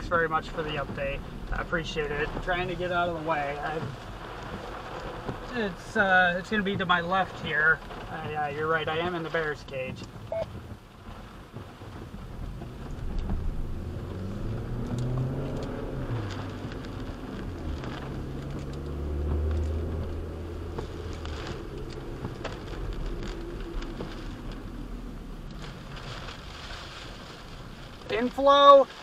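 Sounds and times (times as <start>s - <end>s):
rain on car: 0.0s - 29.0s
windshield wipers sweeping: 0.0s - 29.0s
car engine accelerating: 12.0s - 28.4s.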